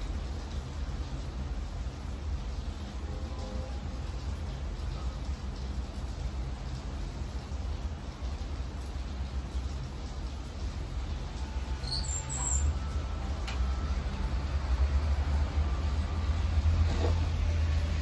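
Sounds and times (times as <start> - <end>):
distant city traffic rumble: 0.0 - 18.0.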